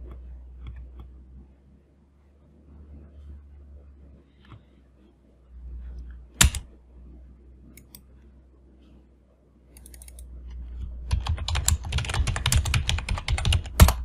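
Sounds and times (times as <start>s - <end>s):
low hum: 0.0s - 14.0s
mouse and keyboard clicks: 9.8s - 10.3s.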